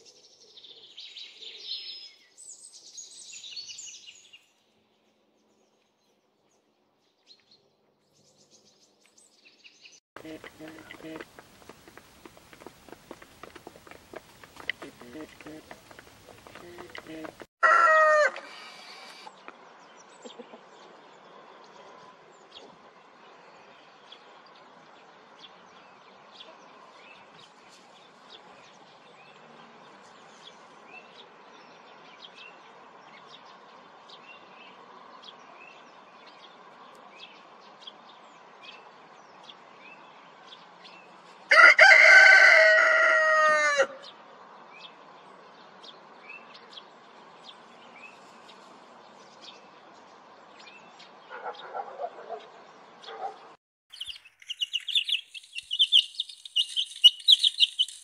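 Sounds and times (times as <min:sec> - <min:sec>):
rooster crowing: 0:16.5 - 0:19.3, 0:41.5 - 0:44.1.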